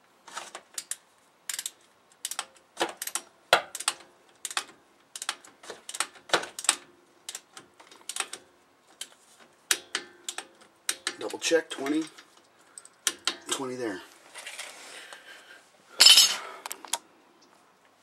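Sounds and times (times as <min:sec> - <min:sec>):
torque wrench clicking: 0:00.8 - 0:07.4.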